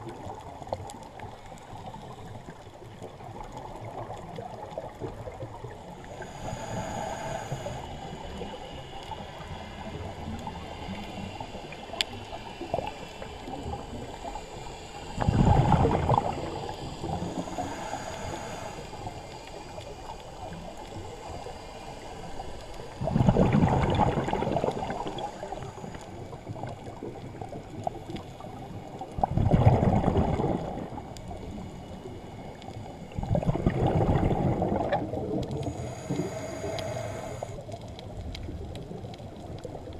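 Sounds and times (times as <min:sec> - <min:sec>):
exhaled bubbles rumbling: 0:00.0 - 0:18.4, 0:22.4 - 0:36.9, 0:37.6 - 0:39.9
regulator hiss: 0:05.8 - 0:29.0, 0:34.6 - 0:37.8.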